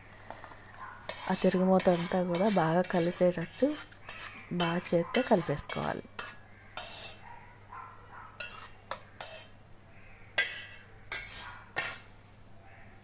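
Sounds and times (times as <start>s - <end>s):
metal cookware clinking and scraping: 1.1s - 7.2s, 8.4s - 9.6s, 10.4s - 12.1s.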